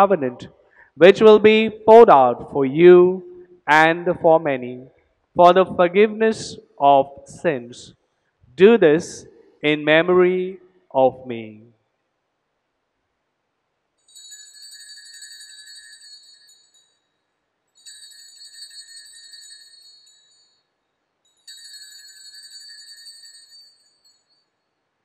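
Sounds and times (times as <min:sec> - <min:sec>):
altar bells jingling: 0:14.1 - 0:24.8.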